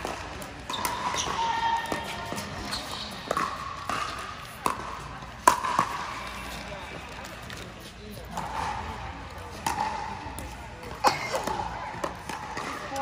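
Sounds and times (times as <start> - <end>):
paddles hitting plastic ball: 0.0 - 7.7
shoes squeaking on floor: 0.6 - 4.6.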